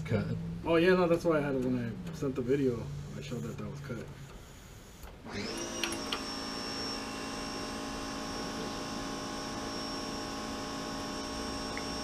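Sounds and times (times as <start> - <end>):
electric motor spinning up and humming: 5.2 - 12.0.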